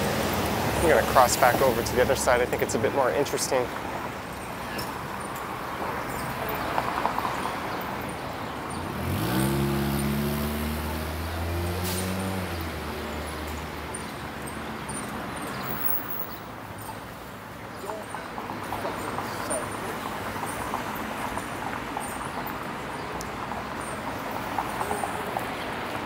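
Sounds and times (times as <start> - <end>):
street traffic: 0.0 - 26.0
vehicle engine accelerating: 8.7 - 14.0.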